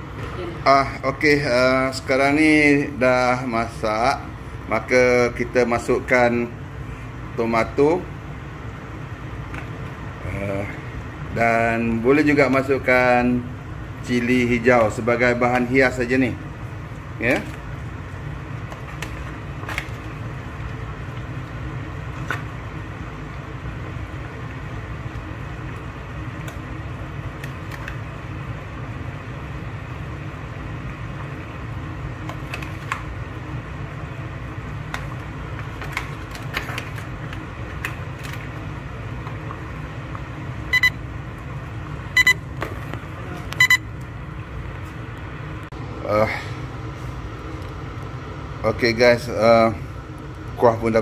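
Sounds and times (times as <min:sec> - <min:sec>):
short electronic beeps: 0:40.7 - 0:41.0, 0:42.2 - 0:42.4, 0:43.6 - 0:43.8.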